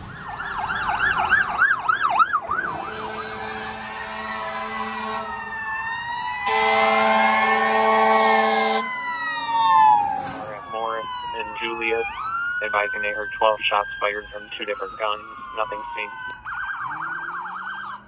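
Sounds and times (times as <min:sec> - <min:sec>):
electronic siren yelp: 0:00.0 - 0:18.0
siren wailing: 0:00.0 - 0:18.0
air horn blast: 0:02.8 - 0:05.4, 0:06.4 - 0:08.9.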